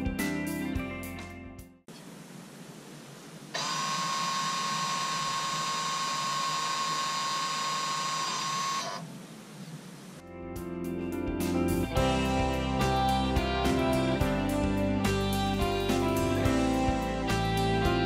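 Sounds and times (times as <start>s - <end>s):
brake motor whining: 1.9s - 10.2s.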